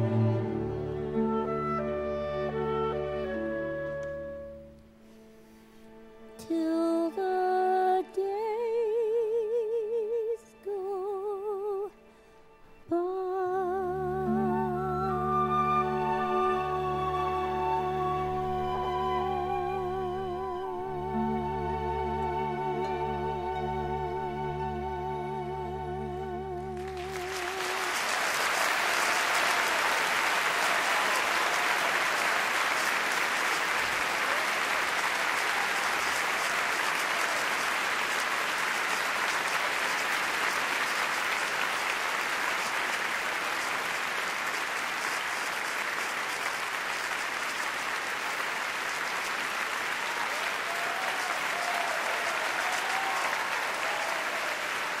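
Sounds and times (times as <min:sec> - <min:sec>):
audience applauding: 0:26.8 - 0:55.0.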